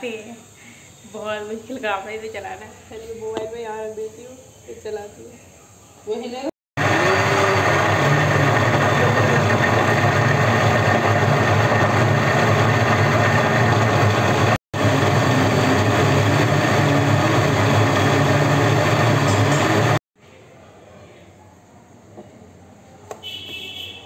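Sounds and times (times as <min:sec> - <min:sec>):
mixer grinder motor whine: 0:06.8 - 0:20.0.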